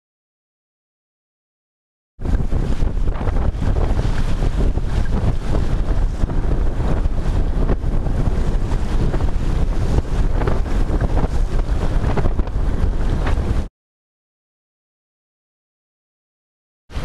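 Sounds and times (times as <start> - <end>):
waves rushing along hull: 2.2 - 13.7
wind buffeting microphone: 2.2 - 13.7.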